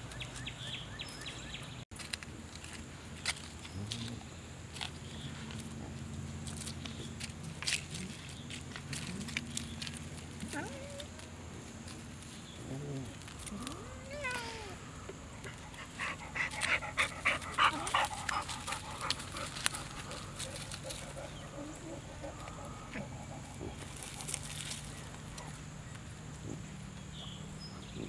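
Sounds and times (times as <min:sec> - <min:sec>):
puppy panting: 0:15.4 - 0:25.6.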